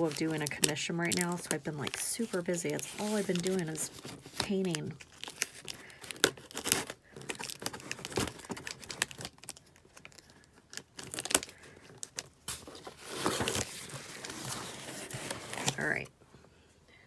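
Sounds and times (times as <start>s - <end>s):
cardboard rustling and scraping: 0.0s - 5.6s, 12.5s - 16.1s
packing tape tearing: 0.0s - 16.0s.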